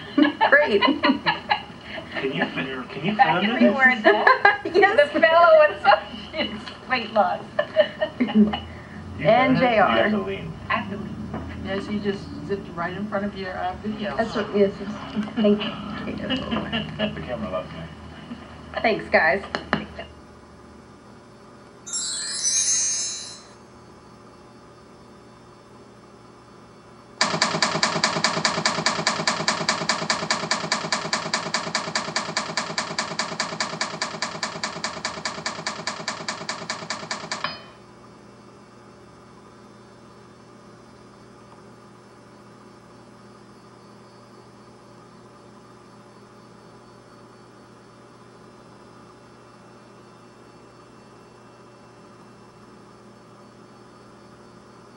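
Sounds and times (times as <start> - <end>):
steady electrical hum: 0.0 - 54.9
rapid pulsing ringing tone: 21.9 - 24.1.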